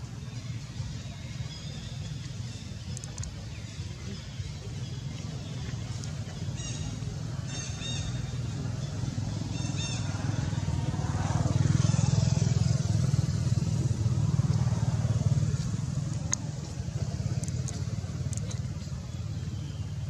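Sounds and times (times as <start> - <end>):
vehicle engine rumbling: 0.0 - 20.0.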